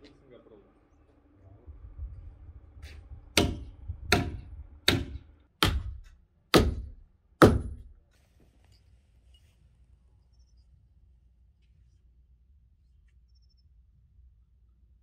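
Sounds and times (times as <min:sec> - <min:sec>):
hammer striking log: 0:03.3 - 0:08.0.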